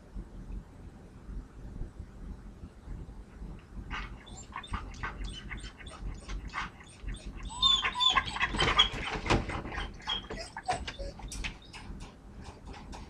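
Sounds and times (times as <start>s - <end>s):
dog whining: 3.9s - 11.9s
puppy panting: 3.9s - 13.0s
rustling and knocking in wire crate: 8.4s - 13.0s.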